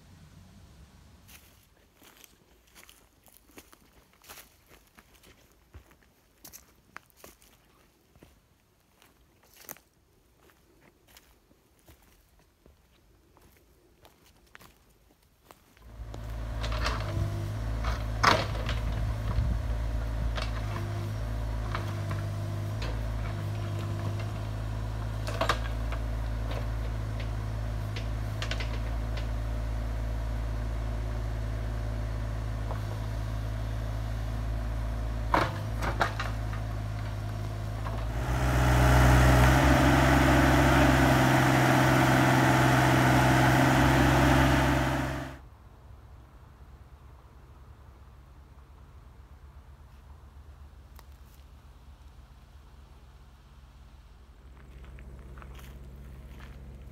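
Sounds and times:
diesel excavator engine running: 15.8s - 45.4s.

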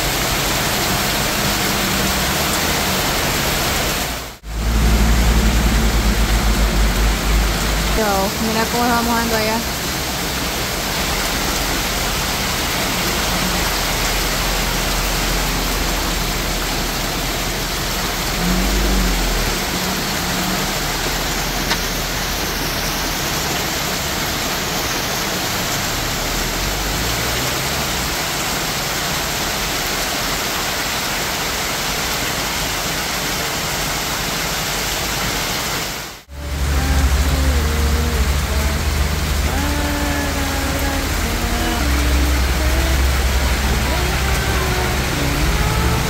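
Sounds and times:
heavy rain pouring: 0.0s - 46.0s
low rumble: 4.3s - 8.0s.

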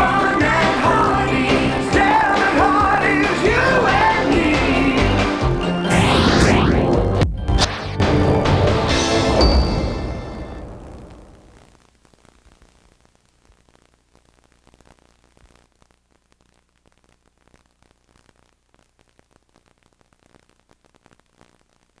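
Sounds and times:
music: 0.0s - 11.3s
tape hiss: 0.0s - 22.0s.

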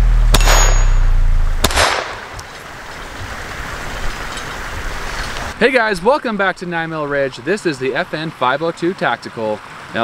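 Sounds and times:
pistol shots: 0.3s - 1.0s, 1.6s - 2.5s.

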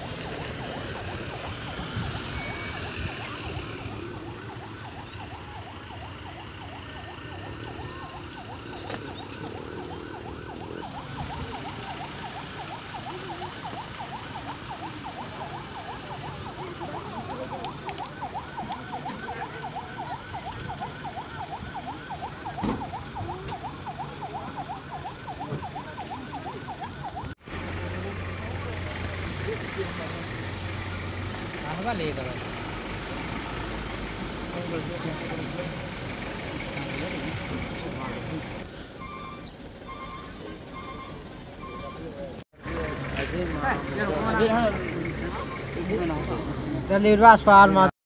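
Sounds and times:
siren yelping: 0.0s - 27.4s, 37.2s - 42.3s.

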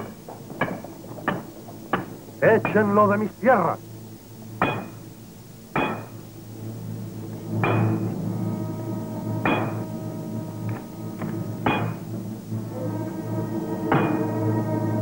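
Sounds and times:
background music: 0.0s - 15.0s
hammer striking anvil: 4.6s - 5.0s, 5.7s - 6.2s, 7.6s - 8.1s, 9.4s - 10.0s, 10.7s - 12.1s, 13.9s - 14.4s.

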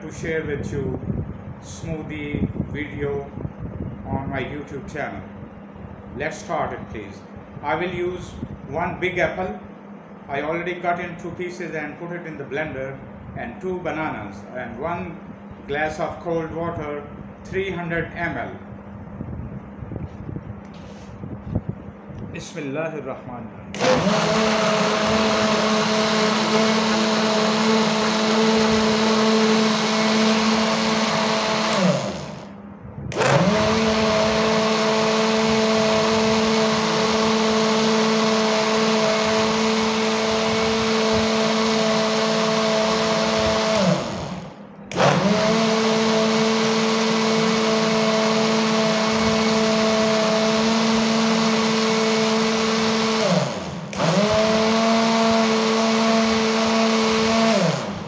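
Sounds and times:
electric blender running: 23.7s - 58.0s.

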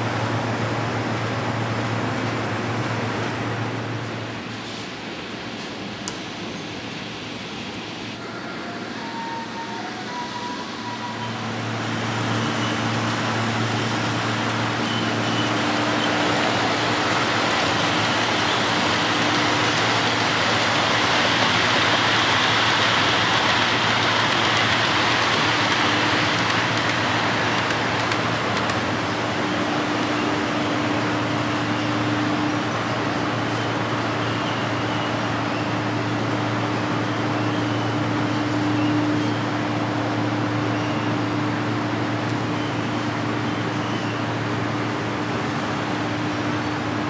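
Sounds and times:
model train rolling on track: 10.4s - 47.0s.

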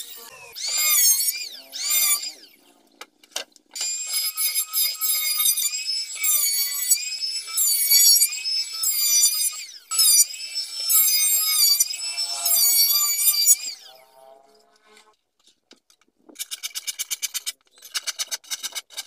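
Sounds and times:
electric hand planer whining: 0.0s - 3.2s, 3.8s - 15.1s.

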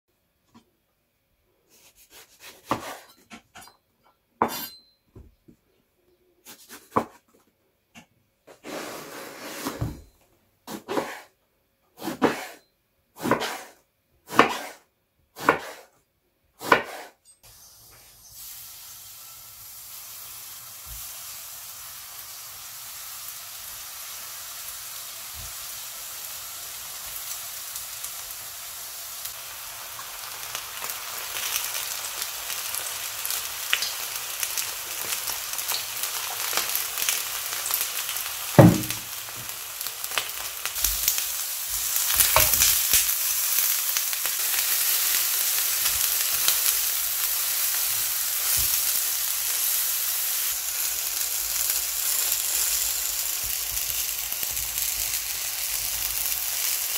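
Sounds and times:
knife slicing on cutting board: 13.2s - 14.8s, 15.4s - 15.9s, 16.6s - 17.2s
frying sizzle in oil: 17.4s - 56.9s.

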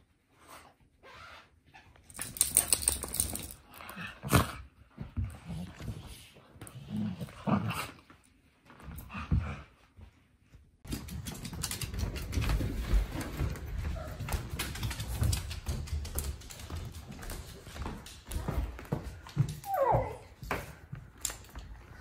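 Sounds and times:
dog claws clicking on hardwood: 14.2s - 19.7s.

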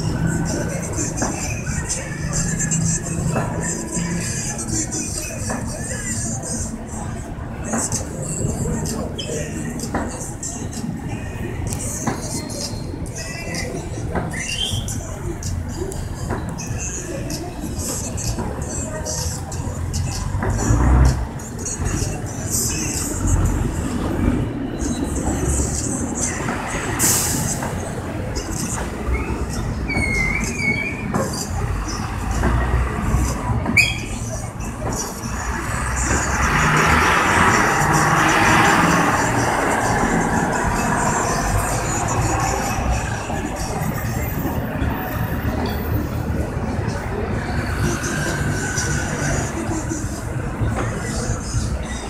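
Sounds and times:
vehicle engines rumbling: 0.0s - 52.0s
wavering high squeal: 33.8s - 34.4s.

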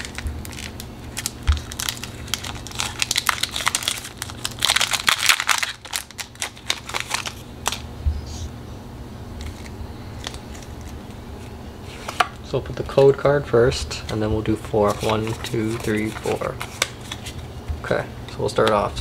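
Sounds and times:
foil pack crackling: 0.0s - 7.8s.

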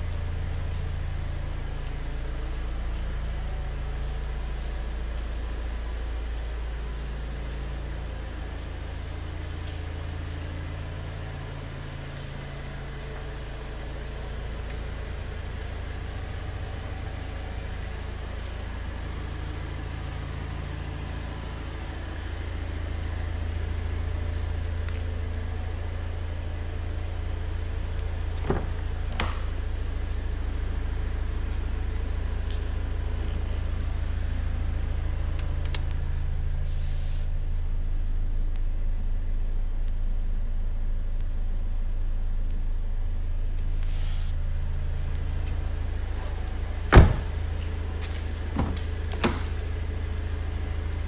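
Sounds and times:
low rumble and hum: 0.0s - 51.0s
car door latch clicks: 46.9s - 47.3s.

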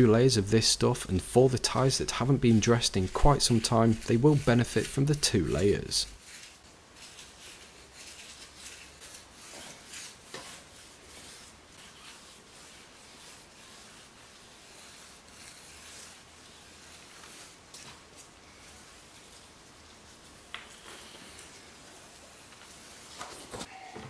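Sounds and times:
brush rubbing on rubber tyre: 0.0s - 23.6s.

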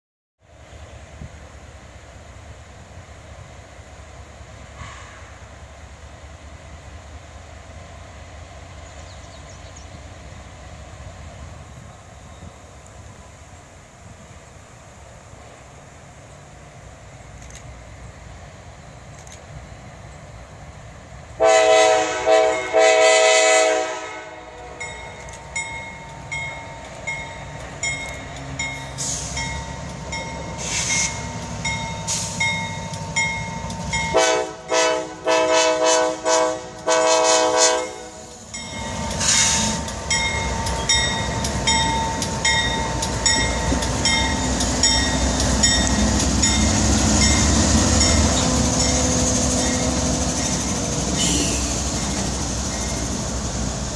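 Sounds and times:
locomotive engine rumble: 0.5s - 53.9s
train air horn blasts: 21.4s - 24.9s, 34.1s - 38.4s, 39.2s - 39.8s, 51.2s - 51.8s
locomotive bell ringing: 24.8s - 34.2s, 37.8s - 50.6s.

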